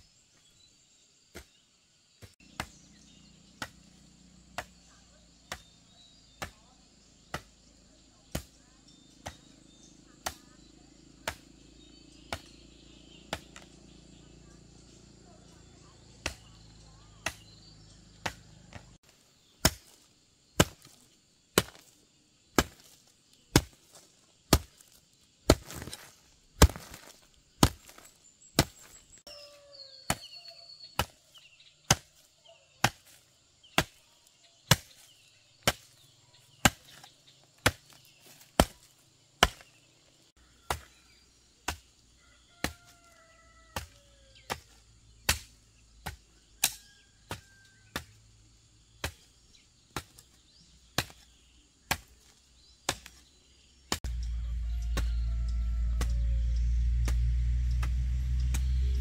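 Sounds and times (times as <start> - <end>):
hand tool chopping: 2.2 - 2.8, 3.5 - 4.8, 5.4 - 7.6, 8.3 - 13.8, 16.1 - 16.6, 17.2 - 17.6, 18.2 - 20.0, 20.6 - 21.0, 21.6 - 22.0, 22.6 - 29.0, 30.1 - 34.0, 34.6 - 39.8, 40.6 - 41.9, 42.6 - 42.9, 43.8 - 48.2, 49.0 - 49.3, 49.9 - 53.3, 53.9 - 59.0.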